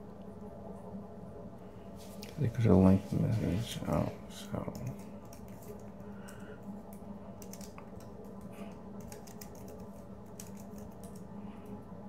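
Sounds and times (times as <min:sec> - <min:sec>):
steady low hum: 0:00.0 - 0:12.0
keyboard typing: 0:04.6 - 0:11.3.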